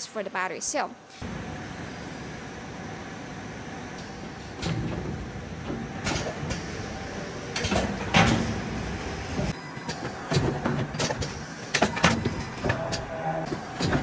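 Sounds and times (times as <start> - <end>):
conveyor mechanical knocks and clacks: 3.9 - 14.0.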